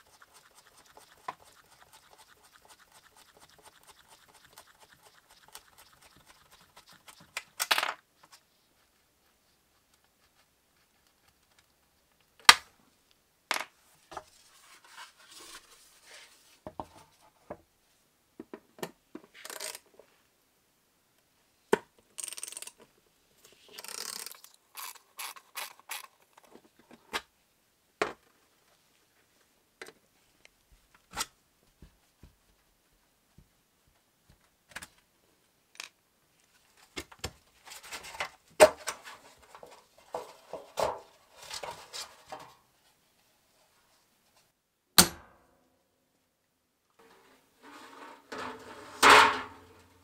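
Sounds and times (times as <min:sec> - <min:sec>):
scraping and rustling: 0:14.0 - 0:17.3, 0:36.4 - 0:43.0, 0:47.0 - 0:50.0.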